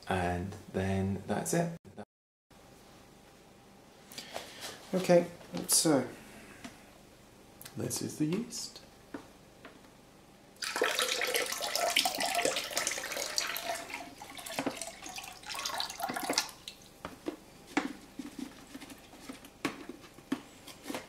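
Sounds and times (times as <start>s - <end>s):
liquid pouring into plastic bucket: 10.6s - 16.8s
liquid dripping: 10.6s - 16.9s.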